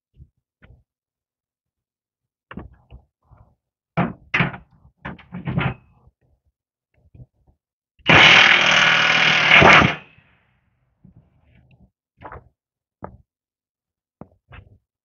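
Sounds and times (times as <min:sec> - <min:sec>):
impact wrench running: 0:08.1 - 0:10.1.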